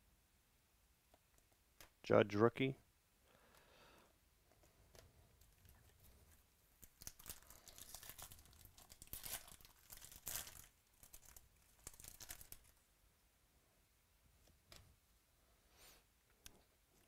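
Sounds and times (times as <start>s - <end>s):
foil wrappers tearing and crinkling: 6.8s - 12.8s.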